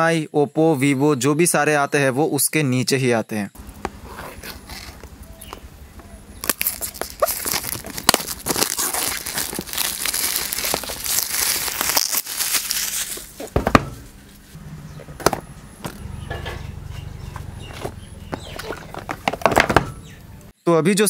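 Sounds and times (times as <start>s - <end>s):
plastic shrink wrap crinkling: 6.3s - 13.6s.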